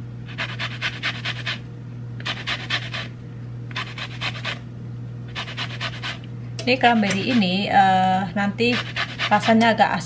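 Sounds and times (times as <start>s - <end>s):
orange peel scraped on grater: 2.2s - 3.1s, 3.7s - 4.6s, 5.3s - 6.2s, 8.7s - 9.6s.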